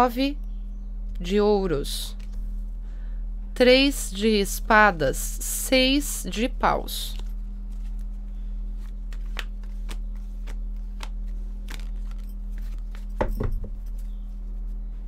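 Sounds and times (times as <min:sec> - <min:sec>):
steady low hum: 0:00.0 - 0:15.0
cards clicking and flicking: 0:08.8 - 0:13.3.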